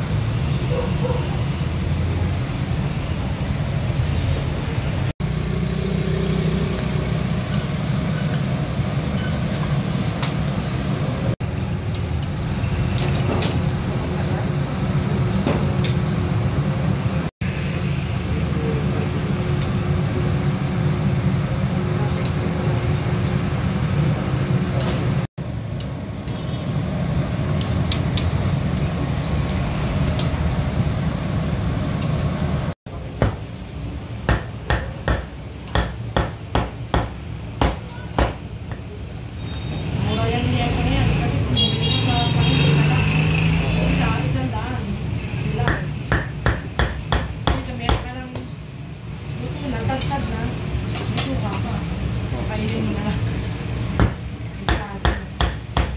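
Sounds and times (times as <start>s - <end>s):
grill stall rumble: 0.0s - 55.9s
metal tongs clicking on grate: 27.6s - 28.9s.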